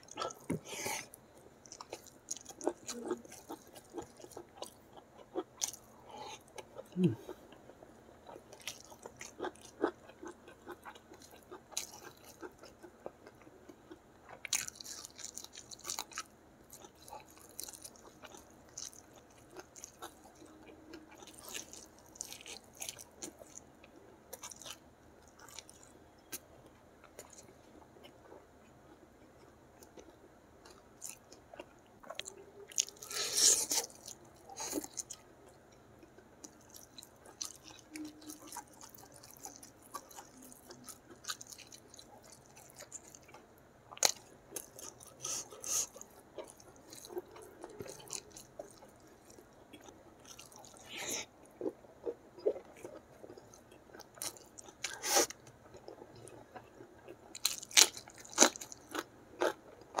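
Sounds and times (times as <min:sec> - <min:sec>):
chewing and crunching food: 0:00.0 - 1:00.0.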